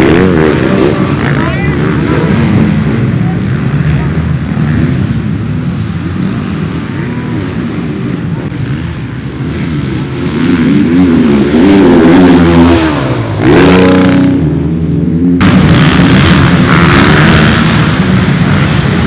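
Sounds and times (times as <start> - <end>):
dirt bike engines revving: 0.0 - 19.0.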